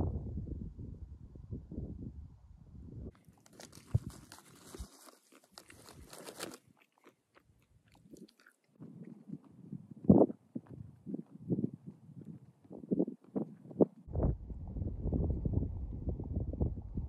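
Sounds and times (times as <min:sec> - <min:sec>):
wind rumble on microphone: 0:00.0 - 0:03.1, 0:08.8 - 0:17.0
plastic packet crinkling: 0:03.2 - 0:07.4
low thump: 0:14.1 - 0:16.7.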